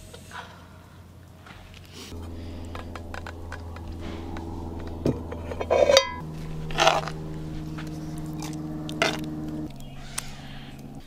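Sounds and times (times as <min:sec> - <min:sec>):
ringing metal clank: 0:02.2 - 0:07.2
pot lid knocking: 0:04.9 - 0:06.2
spoon scraping in pot: 0:05.3 - 0:07.2.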